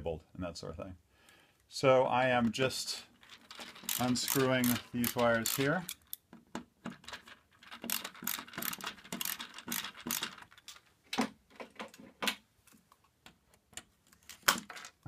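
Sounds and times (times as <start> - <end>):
screwdriver clicks and scrapes: 3.3 - 6.2, 7.0 - 10.8.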